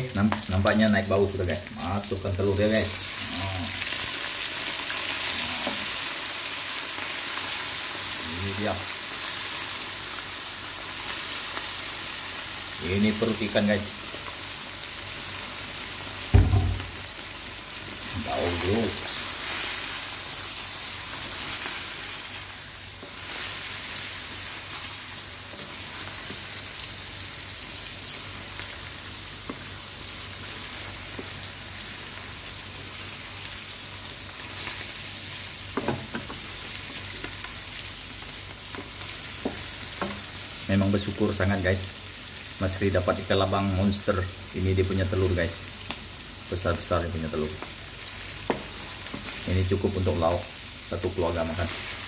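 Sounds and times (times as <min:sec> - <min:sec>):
food sizzling in hot oil: 0:00.0 - 0:52.0
loud low thump: 0:16.3 - 0:17.0
spatula knocking on wok: 0:16.4 - 0:17.0.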